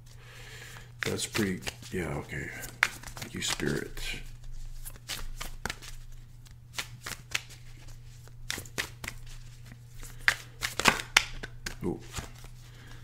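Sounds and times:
low electrical hum: 0:00.0 - 0:13.0
cards shuffled by hand: 0:00.7 - 0:13.0.

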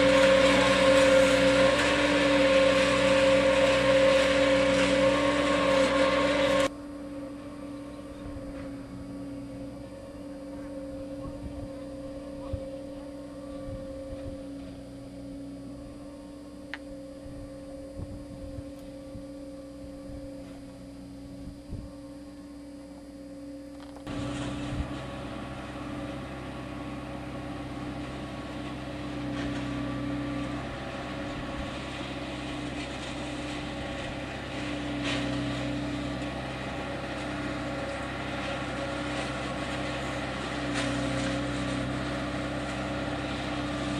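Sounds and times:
tractor engine and hydraulic hum: 0:00.0 - 0:43.9.

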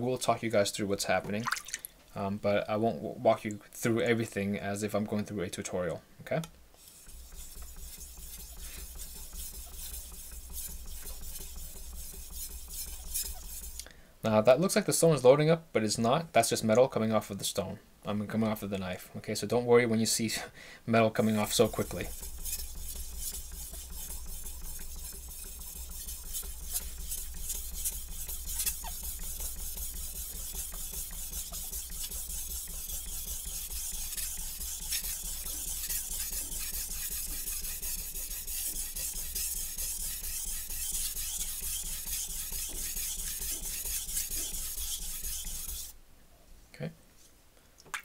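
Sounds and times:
knife scraping on whetstone: 0:06.8 - 0:13.8, 0:21.2 - 0:46.0.

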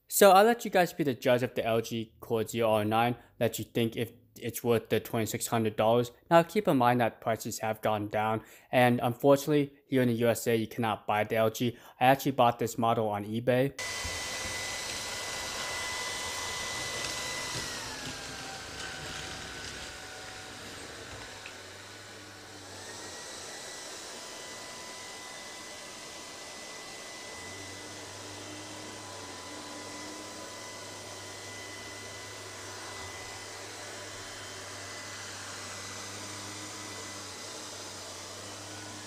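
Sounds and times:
robot vacuum motor whine: 0:13.8 - 0:39.0.

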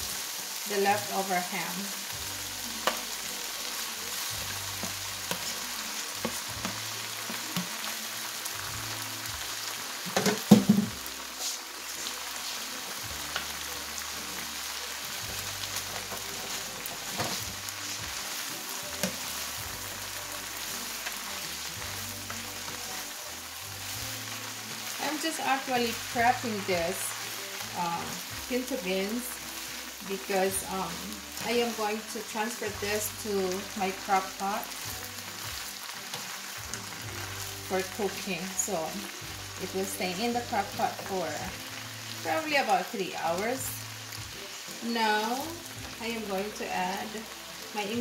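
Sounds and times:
food sizzling in skillet: 0:00.0 - 0:48.0
spatula stirring pan: 0:02.6 - 0:08.4, 0:09.5 - 0:38.7.

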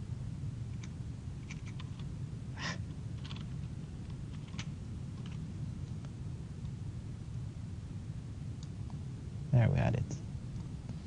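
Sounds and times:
steady low hum: 0:00.0 - 0:11.0
keyboard and mouse clicks: 0:00.8 - 0:02.1, 0:03.2 - 0:03.6, 0:04.3 - 0:05.4.

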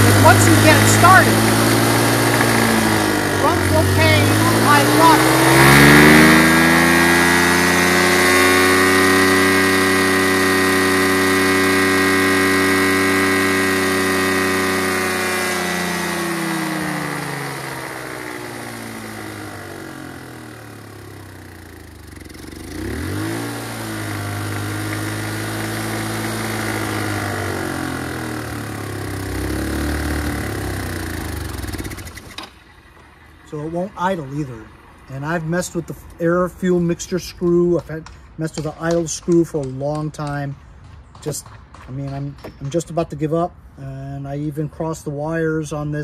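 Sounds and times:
scooter engine running unevenly: 0:00.0 - 0:34.1.

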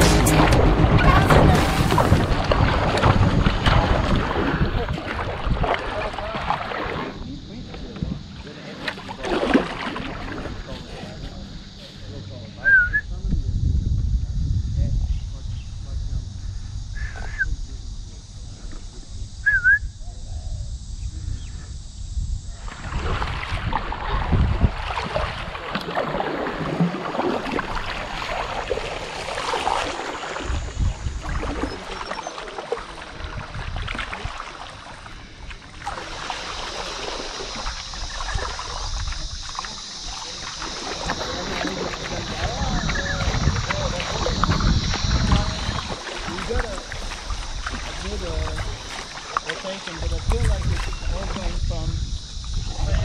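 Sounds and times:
paddle strokes splashing: 0:00.0 - 0:12.2, 0:22.6 - 0:51.7
water washing past hull: 0:00.0 - 0:13.0, 0:21.1 - 0:53.0
wind rumble on microphone: 0:00.0 - 0:32.2, 0:33.1 - 0:53.0.

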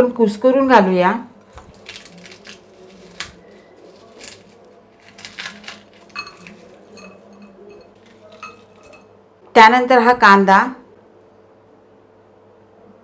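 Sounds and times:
crisp wafers crunching: 0:01.5 - 0:07.0
light clinks: 0:06.1 - 0:09.1.

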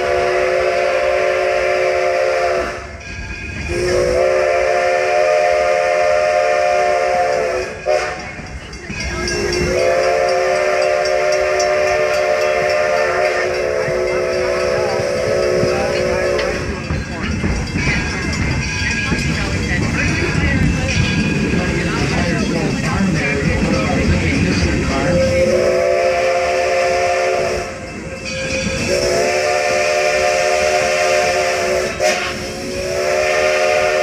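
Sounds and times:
steam locomotive whistle: 0:00.0 - 0:03.0, 0:03.6 - 0:08.4, 0:09.2 - 0:16.9, 0:24.9 - 0:34.0
train running noise: 0:00.0 - 0:34.0.

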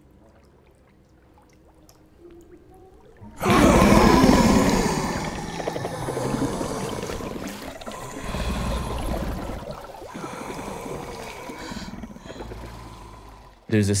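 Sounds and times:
creature rasping breaths and growls: 0:03.4 - 0:13.7.

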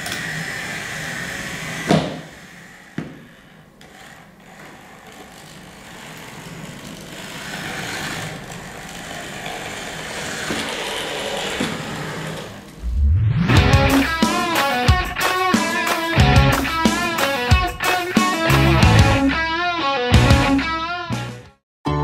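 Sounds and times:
toy motor and gears whirring: 0:03.8 - 0:12.5
low whoosh: 0:12.8 - 0:14.2
intro music: 0:12.8 - 0:22.0.

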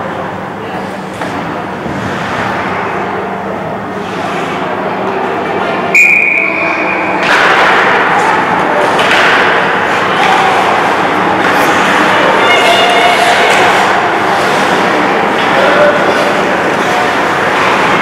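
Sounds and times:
ice rink noise: 0:00.0 - 0:18.0
referee's whistle: 0:05.9 - 0:07.1.

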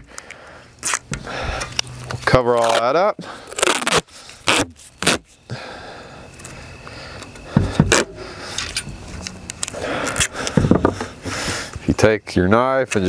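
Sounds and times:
tape ripping off roll: 0:00.8 - 0:05.4, 0:07.9 - 0:08.1.

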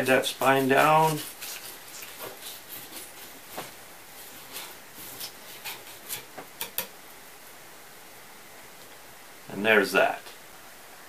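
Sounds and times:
knife scraping along fish backbone: 0:00.0 - 0:06.8.

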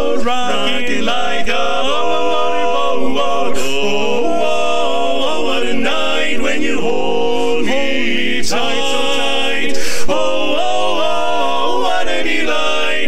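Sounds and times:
men singing a cappella harmony: 0:00.0 - 0:13.0.

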